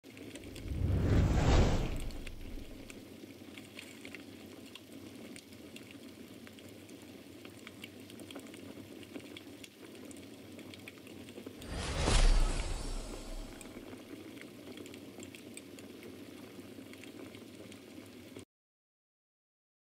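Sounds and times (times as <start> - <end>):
steady crackling noise: 0.2 - 3.0
whoosh: 0.4 - 2.9, 11.6 - 13.9.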